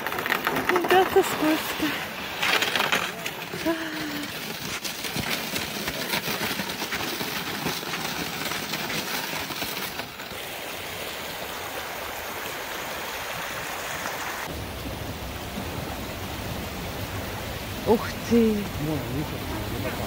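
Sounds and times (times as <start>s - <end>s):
footsteps on snow and ice: 0.0s - 10.3s
creek flowing over stones: 0.0s - 20.0s.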